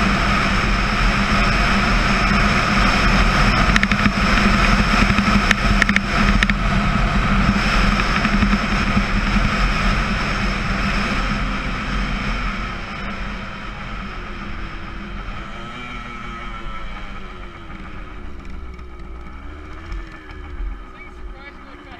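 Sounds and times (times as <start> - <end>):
wind rushing over camera: 0.0 - 15.4
two-stroke motorcycle engine: 0.0 - 21.9.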